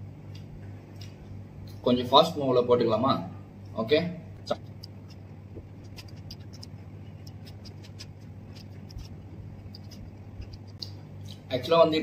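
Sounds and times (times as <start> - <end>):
low hum: 3.3 - 11.5.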